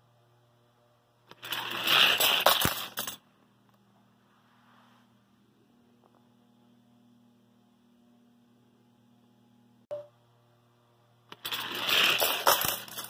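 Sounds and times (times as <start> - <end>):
faint steady hum: 0.0 - 1.4, 2.8 - 11.4
toy cars rattling down plastic track: 1.3 - 3.2, 11.3 - 13.0.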